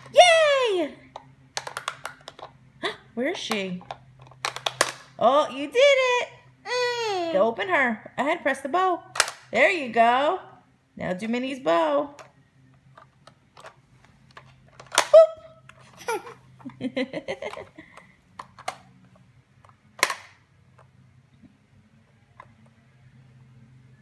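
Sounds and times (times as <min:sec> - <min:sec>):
plastic toy lids snapping shut: 0:04.4 - 0:05.1, 0:09.2 - 0:09.5, 0:14.7 - 0:15.2, 0:20.0 - 0:20.4
toddler giggling: 0:15.9 - 0:16.5.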